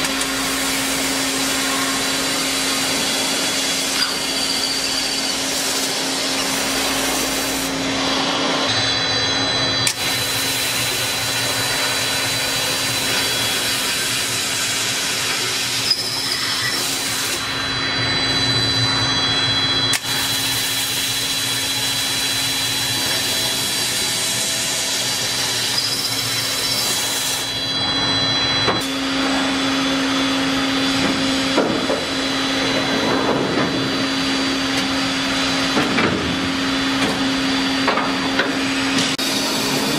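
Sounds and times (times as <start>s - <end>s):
drill machine boring steel: 0.0s - 33.1s, 33.7s - 39.9s
high machine whine: 0.0s - 39.9s.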